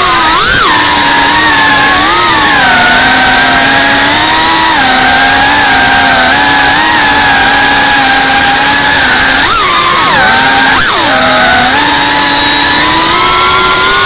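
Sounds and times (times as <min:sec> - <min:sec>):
drone motors whining: 0:00.0 - 0:14.0.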